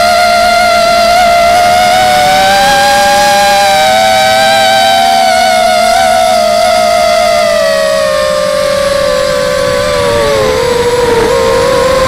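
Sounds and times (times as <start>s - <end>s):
quadcopter motors whining: 0.0s - 12.0s.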